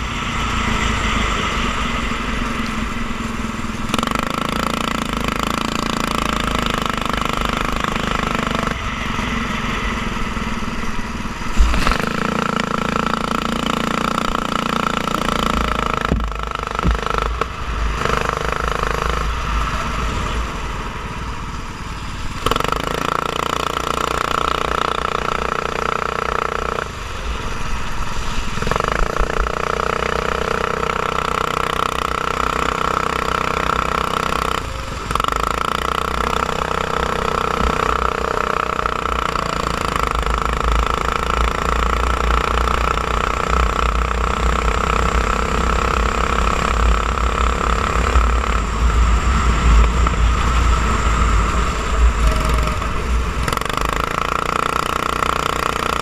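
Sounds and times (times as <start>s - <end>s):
go-kart engine running hard: 0.0s - 56.0s
sharp knock: 15.9s - 17.5s.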